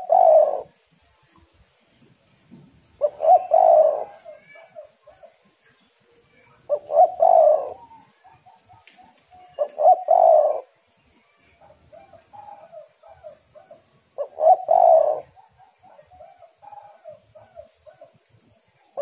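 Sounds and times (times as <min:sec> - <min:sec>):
dove cooing: 0:00.0 - 0:00.8, 0:03.0 - 0:05.5, 0:06.4 - 0:10.8, 0:11.6 - 0:18.3
faint dove cooing: 0:00.0 - 0:00.8, 0:03.0 - 0:10.8, 0:11.4 - 0:19.0.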